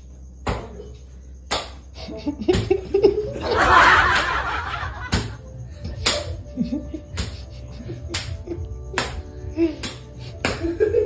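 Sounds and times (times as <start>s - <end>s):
person laughing: 2.0s - 5.1s, 6.4s - 8.7s, 9.6s - 11.0s
background music with a beat: 3.6s - 11.0s.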